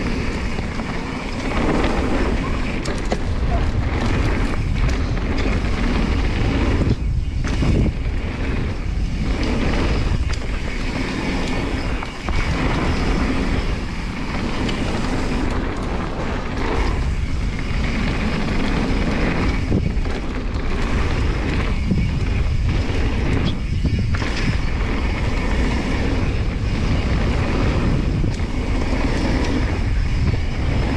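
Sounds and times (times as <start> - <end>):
bike knocking and rattling: 0.0 - 30.9
bike tyres rumbling on dirt: 0.0 - 30.9
wind rushing over microphone: 0.0 - 30.9.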